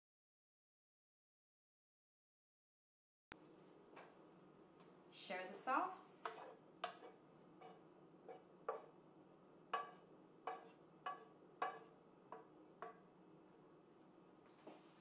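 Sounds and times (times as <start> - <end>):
wooden spoon tapping frying pan: 6.2 - 8.9, 9.7 - 13.1.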